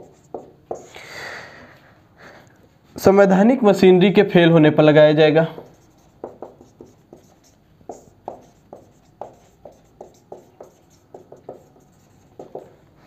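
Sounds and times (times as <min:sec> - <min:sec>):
marker writing on whiteboard: 0:00.0 - 0:01.0, 0:05.6 - 0:13.0.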